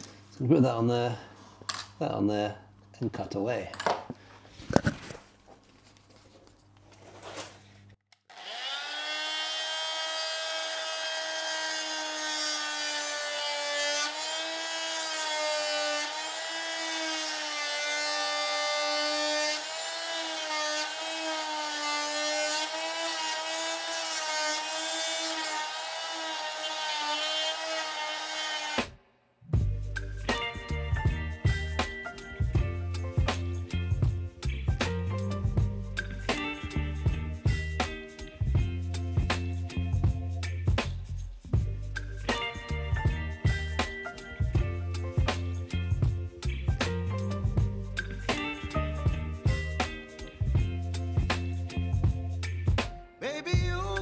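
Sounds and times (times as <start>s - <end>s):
power saw cutting wood: 8.3s - 29.0s.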